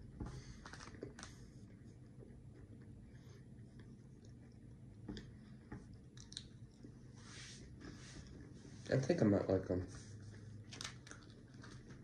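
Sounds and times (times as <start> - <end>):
faint chewing: 0.4 - 7.1, 10.2 - 12.0.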